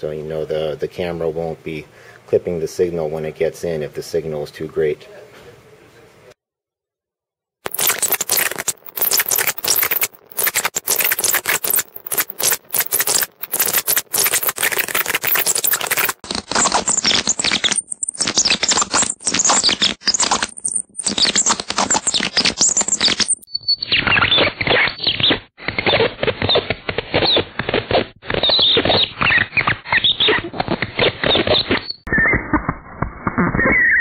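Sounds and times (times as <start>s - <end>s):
scratchy electrical crackle: 7.6s - 34.0s.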